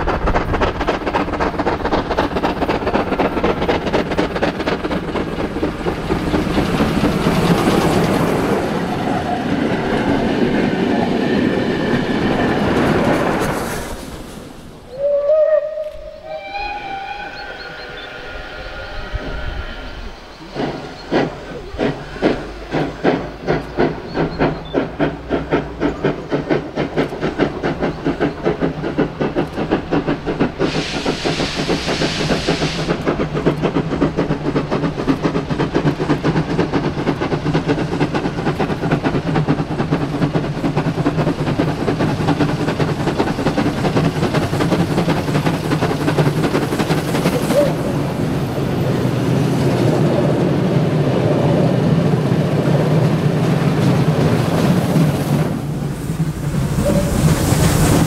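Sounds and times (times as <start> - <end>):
steam locomotive exhaust beats: 0.0 - 14.0, 14.6 - 58.0
hissing steam burst: 16.0 - 50.6, 54.5 - 58.0.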